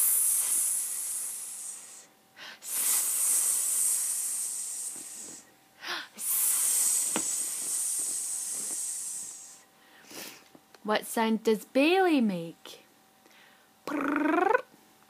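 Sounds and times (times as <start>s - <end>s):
person hissing like a snake: 0.0s - 10.4s
person breathing: 0.0s - 10.5s, 13.2s - 13.8s.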